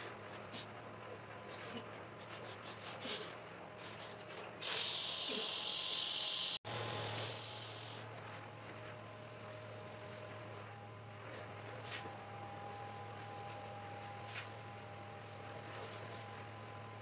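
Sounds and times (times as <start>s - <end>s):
extraction tool hissing: 4.6s - 8.1s.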